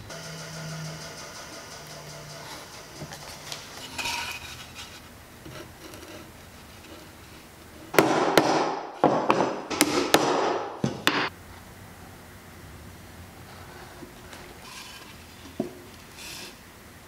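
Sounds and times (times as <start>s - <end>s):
hammer striking wood: 8.0s - 11.3s.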